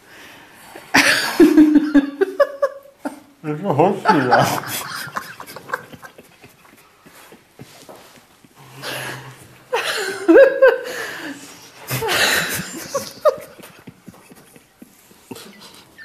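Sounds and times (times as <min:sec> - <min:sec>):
man and woman laughing: 0:01.0 - 0:03.2, 0:03.9 - 0:08.3, 0:11.9 - 0:16.0.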